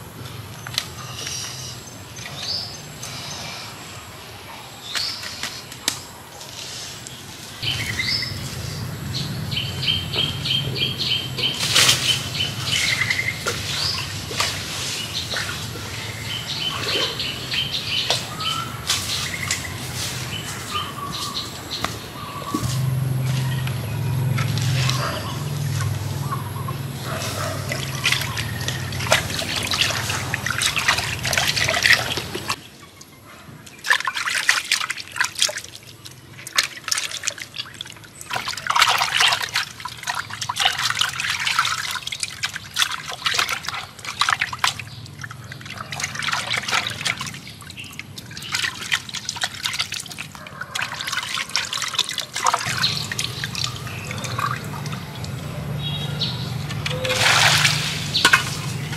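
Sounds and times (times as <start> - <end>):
water splashing in a pot: 27.6 - 32.6, 33.8 - 55.9, 56.5 - 58.9.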